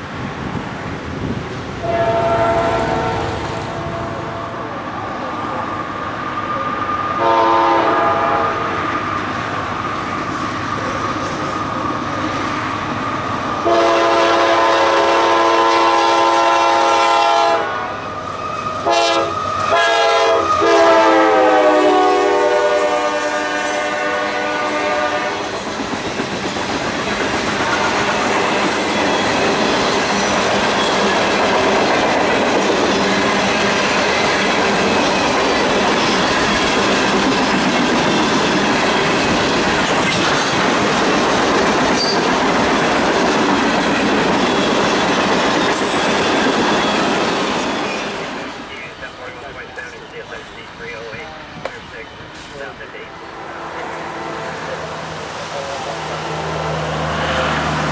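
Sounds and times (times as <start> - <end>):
train cars rolling past: 0.0 - 57.9
locomotive air horn: 1.8 - 4.8, 7.2 - 9.0, 13.6 - 25.5.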